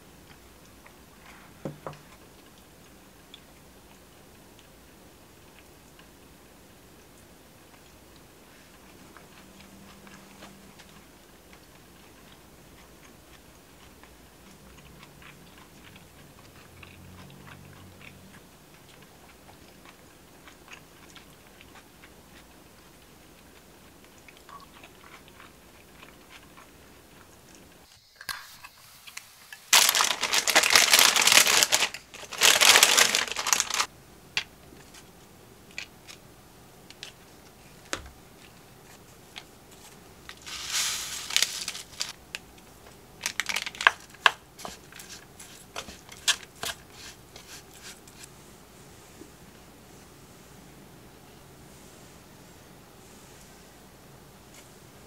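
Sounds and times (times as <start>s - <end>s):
packaging crinkling: 29.7s - 33.9s, 40.3s - 42.2s, 43.2s - 45.2s
wooden spoon mixing rice: 39.7s - 42.2s, 44.6s - 48.4s.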